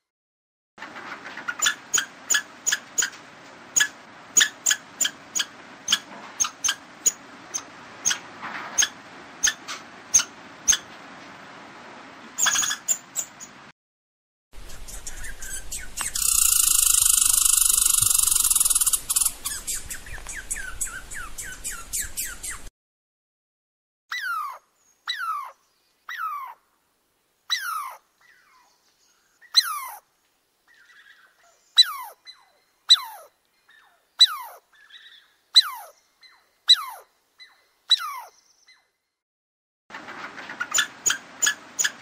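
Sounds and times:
squirrel chirping calls: 1.6s - 3.1s, 3.8s - 8.2s, 8.8s - 10.9s, 12.4s - 13.6s, 14.6s - 22.7s, 24.1s - 26.6s, 27.5s - 30.0s, 30.7s - 38.9s, 40.7s - 42.0s
high hiss with rapid chirps: 14.6s - 22.4s.

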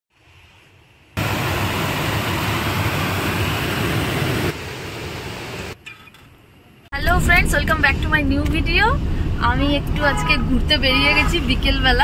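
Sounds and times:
steady rushing noise: 1.0s - 5.8s.

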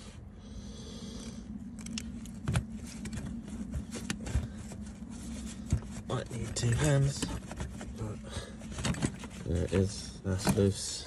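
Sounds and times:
steady low hum: 0.0s - 11.0s
clicks and knocks of parts: 1.7s - 4.8s, 8.6s - 9.4s.

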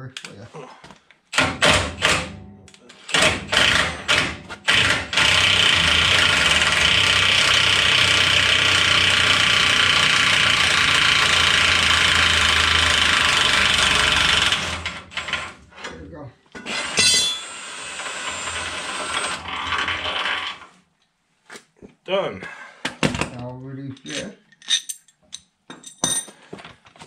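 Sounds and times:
impact wrench hammering: 16.9s - 17.5s.

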